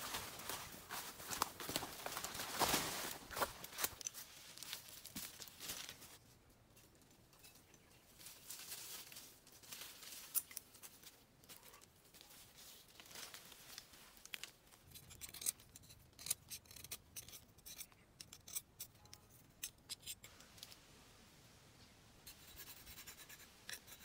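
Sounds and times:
rustling in dry leaves: 0.0s - 6.4s, 7.9s - 14.9s
knife shaving a stick: 22.3s - 24.0s.

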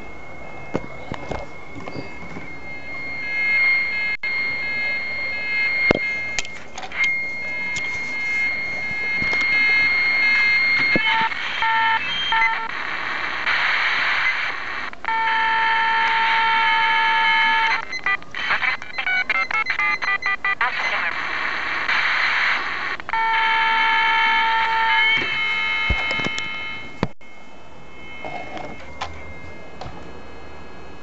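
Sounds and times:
steady high whistle: 0.0s - 10.8s
chord of steady electronic tones: 0.0s - 31.0s
radio receiver hiss: 4.3s - 23.2s.

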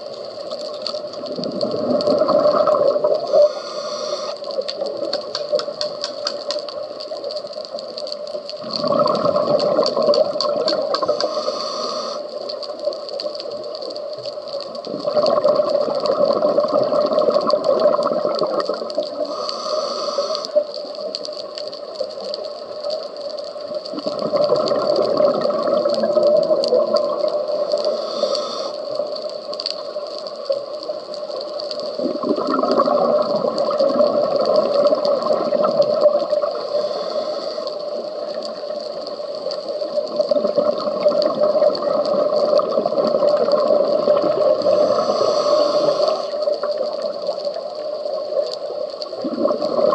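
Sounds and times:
bubbling exhalation underwater: 1.2s - 3.4s, 8.6s - 11.1s, 14.9s - 19.2s, 23.9s - 27.3s, 32.0s - 36.6s, 40.2s - 45.2s, 49.1s - 49.9s
regulator inhalation hiss: 3.2s - 4.9s, 10.7s - 13.0s, 19.1s - 20.7s, 27.4s - 29.2s, 36.3s - 38.2s, 44.4s - 46.8s.

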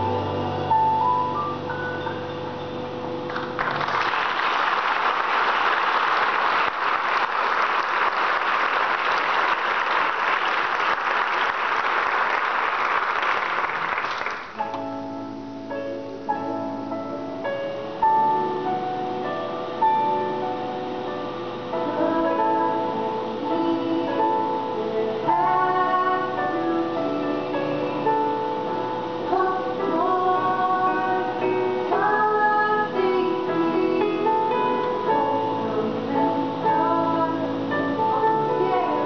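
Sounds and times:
band keyboard playing: 0.0s - 4.0s, 14.5s - 39.0s
audience applause: 3.3s - 14.6s.

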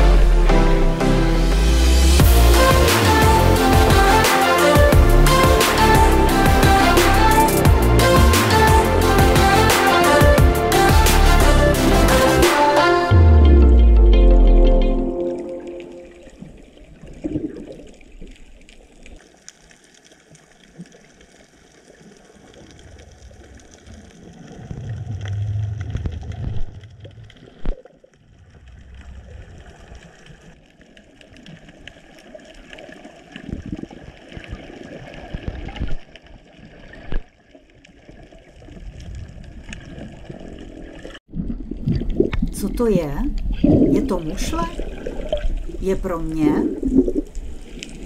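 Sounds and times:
underwater water movement: 15.1s - 48.0s.

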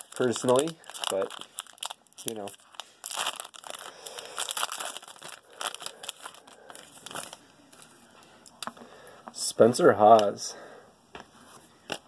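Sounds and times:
foil wrapper crinkling and tearing: 0.0s - 7.4s.

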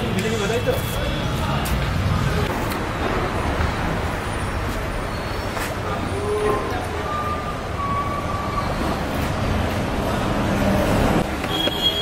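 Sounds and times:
city traffic rumble: 0.0s - 12.0s
short high beeps or horns: 11.4s - 12.0s.

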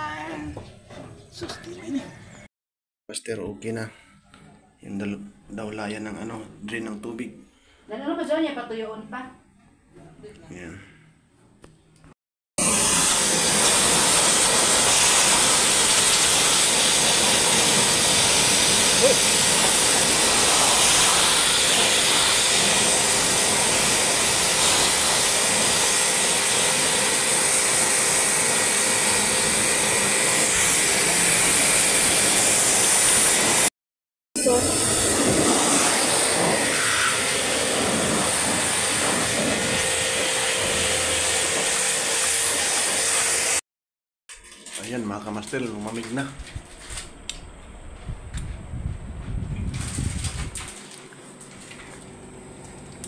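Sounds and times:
pressure washer spraying: 12.6s - 33.7s, 34.4s - 43.6s.

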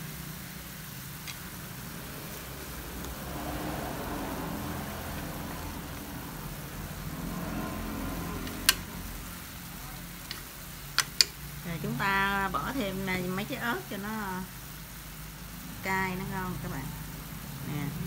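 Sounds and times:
engine-like hum: 1.1s - 14.4s
chopsticks clicking on a pan: 1.2s - 1.5s, 8.4s - 9.0s, 10.2s - 11.4s.

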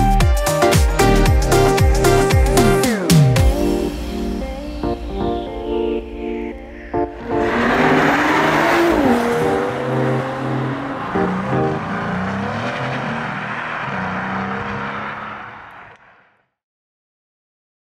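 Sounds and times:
background music: 0.0s - 12.7s
sports car accelerating past: 7.2s - 16.0s.

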